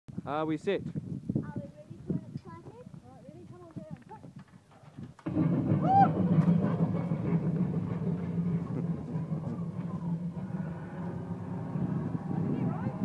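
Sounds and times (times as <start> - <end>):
loud low machine noise: 5.2 - 13.0.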